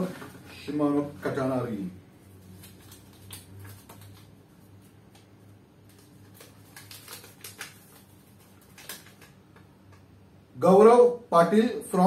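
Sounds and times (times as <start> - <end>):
paper crinkling: 0.0 - 1.4, 2.2 - 9.6.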